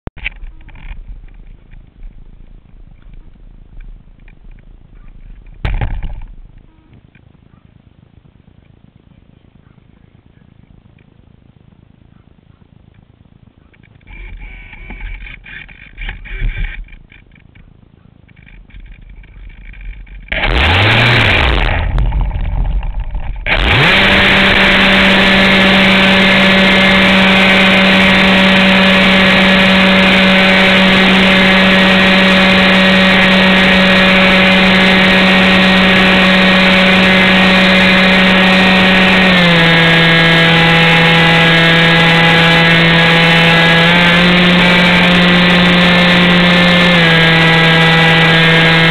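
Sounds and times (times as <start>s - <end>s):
model airplane motor whining: 12.9s - 48.9s.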